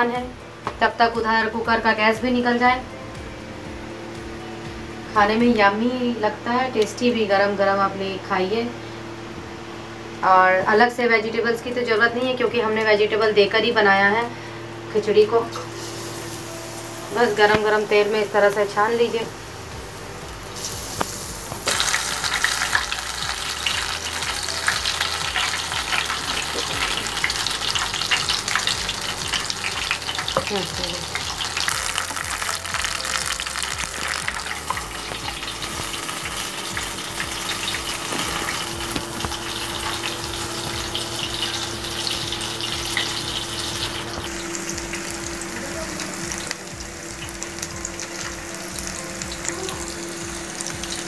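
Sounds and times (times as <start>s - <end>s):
fritters deep-frying in oil: 20.3s - 51.0s.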